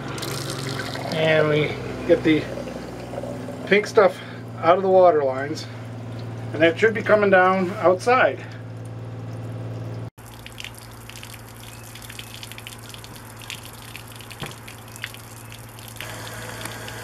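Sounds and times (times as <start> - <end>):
water gushing onto ground: 0.0 - 7.1, 8.2 - 17.0
water pump humming: 0.0 - 17.0
faucet running into sink: 0.1 - 1.2.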